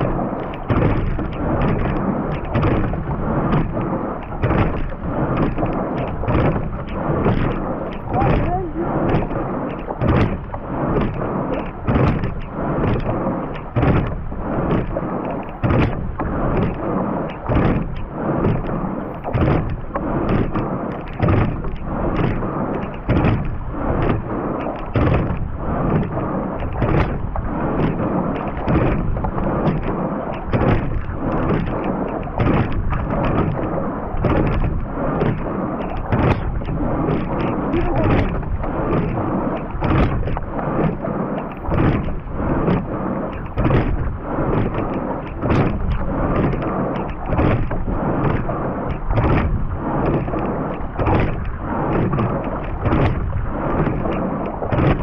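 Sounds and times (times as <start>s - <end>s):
rushing water: 0.0s - 55.0s
wind: 0.0s - 55.0s
oars knocking in oarlocks: 28.4s - 40.6s.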